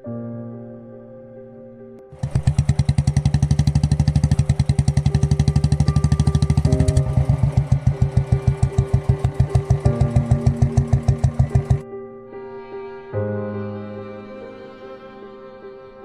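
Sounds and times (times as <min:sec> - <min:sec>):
soft background music: 0:00.0 - 0:02.6, 0:03.4 - 0:16.0
motorcycle engine running: 0:02.2 - 0:11.8.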